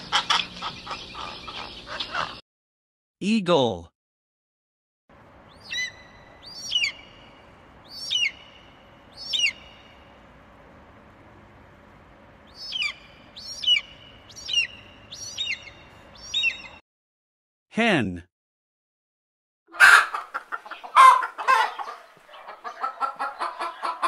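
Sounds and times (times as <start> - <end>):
eagle calling: 5.5 - 8.6, 9.2 - 9.8, 12.5 - 16.8.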